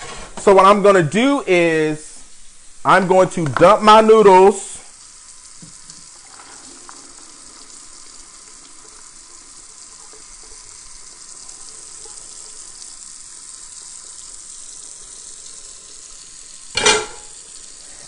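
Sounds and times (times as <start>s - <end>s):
tap water splashing in sink: 3.4s - 4.6s, 5.5s - 7.8s, 16.7s - 17.6s.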